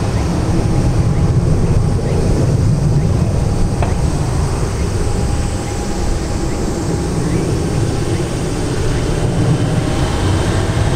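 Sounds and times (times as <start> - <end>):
jet engines rumbling: 0.0 - 10.9.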